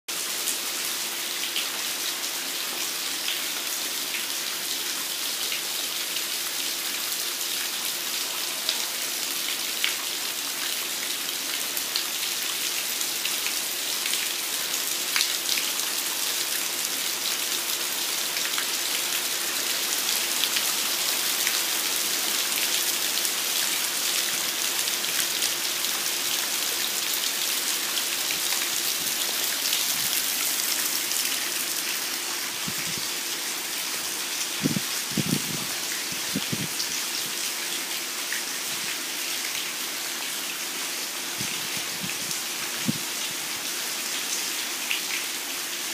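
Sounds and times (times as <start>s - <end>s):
heavy rain falling: 8.1s - 39.8s.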